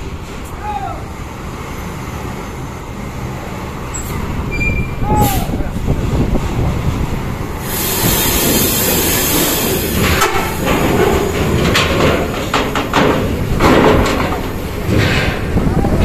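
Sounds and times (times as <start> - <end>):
bus passing: 0.0 - 16.0
loud hiss: 7.6 - 10.8
clattering knocks: 9.4 - 16.0.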